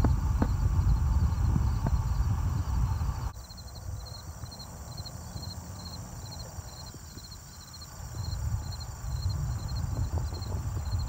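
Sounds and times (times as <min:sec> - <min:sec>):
insects chirping: 0:00.0 - 0:11.0
wind rumbling on microphone: 0:00.0 - 0:11.0.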